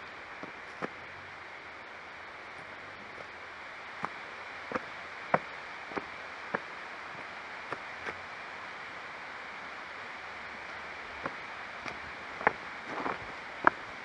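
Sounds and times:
steady hiss: 0.0s - 14.0s
footsteps on stone path: 0.4s - 1.0s, 4.0s - 8.2s, 11.2s - 13.8s.

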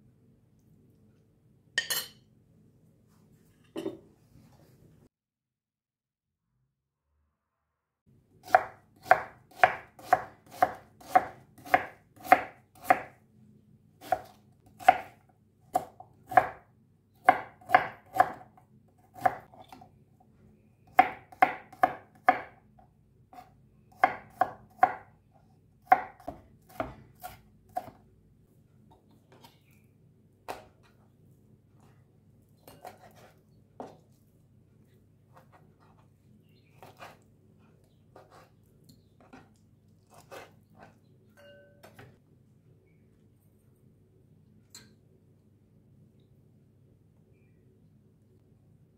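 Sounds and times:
knife chopping on wooden board: 8.4s - 13.1s, 14.0s - 16.6s, 17.2s - 18.4s, 21.0s - 22.6s, 23.4s - 25.1s, 25.8s - 28.0s, 32.7s - 34.0s, 36.8s - 37.2s, 40.1s - 40.5s.

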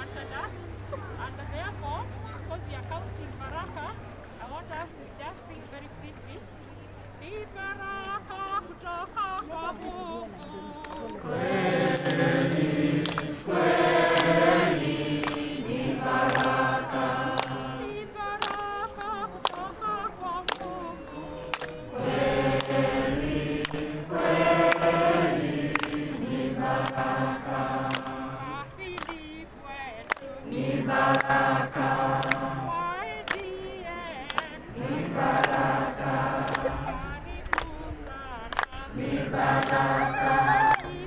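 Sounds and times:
group of people singing: 9.1s - 41.0s
hand claps: 9.4s - 11.2s, 11.9s - 22.9s, 23.6s - 23.9s, 24.6s - 24.9s, 25.7s - 27.2s, 27.8s - 29.4s, 30.0s - 30.3s, 31.0s - 32.5s, 33.2s - 40.0s, 40.6s - 41.0s.

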